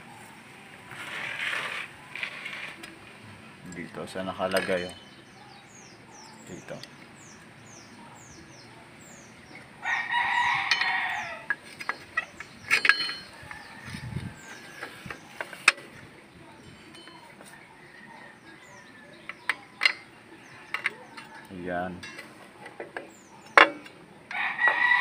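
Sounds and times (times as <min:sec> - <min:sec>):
rooster crowing: 0:09.8 - 0:11.6, 0:24.3 - 0:25.0.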